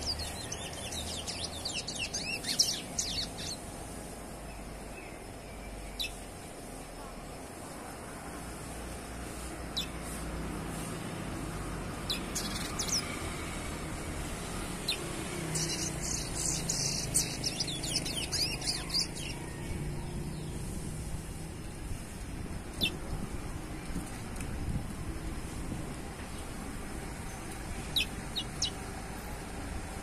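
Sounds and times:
finch singing: 0.0 - 3.7, 12.1 - 13.1, 14.8 - 19.4, 27.8 - 28.8
low rumble of traffic: 0.0 - 30.0.

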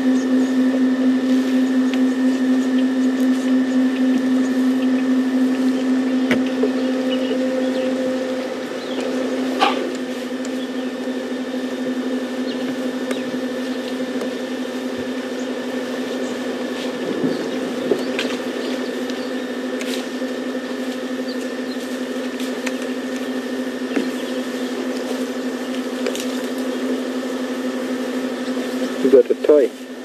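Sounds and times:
low mechanical hum: 0.0 - 30.0
faint clicks and ticks: 17.9 - 27.2.

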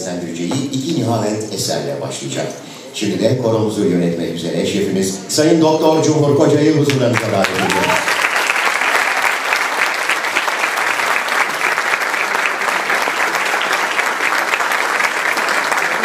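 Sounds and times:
crowd applauding: 6.9 - 16.0.

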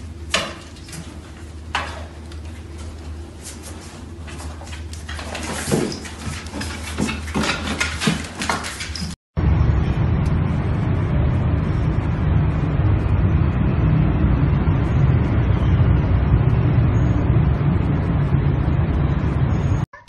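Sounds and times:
low rumbling noise: 9.4 - 19.9.

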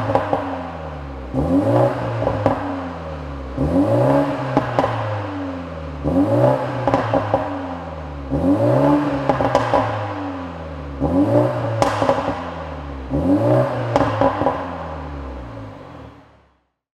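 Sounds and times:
exhaust pops and cracks: 0.0 - 0.6, 2.2 - 2.7, 4.5 - 5.2, 6.8 - 7.5, 9.0 - 10.2, 11.7 - 12.7, 13.8 - 14.8
car engine revving: 0.0 - 16.6.

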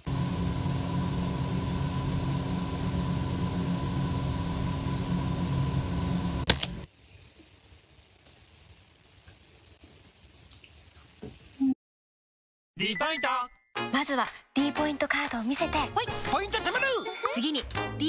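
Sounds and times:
mechanical hum with high whine: 0.0 - 9.1.

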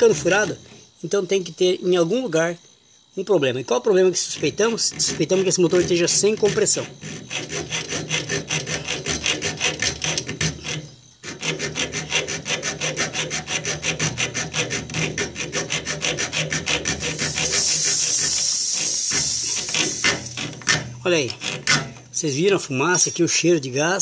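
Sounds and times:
saw cutting metal tube: 0.0 - 0.8, 4.2 - 22.0
gas hissing from cut tube: 16.8 - 20.8.

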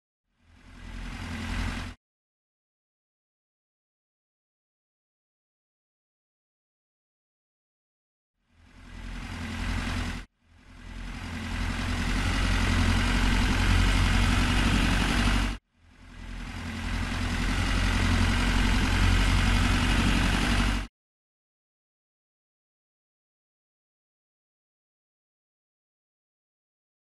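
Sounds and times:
tractor engine humming: 0.6 - 2.0, 8.6 - 20.9.

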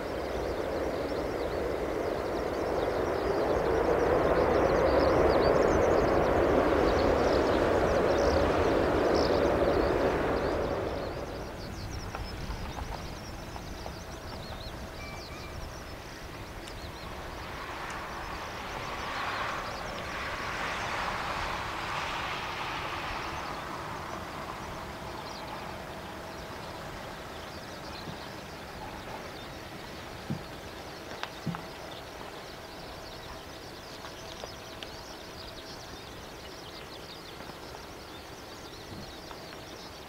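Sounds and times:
faint bird chirps: 0.0 - 21.1
jet engines roaring: 0.0 - 39.8
distant rumble with hiss: 0.0 - 40.0.

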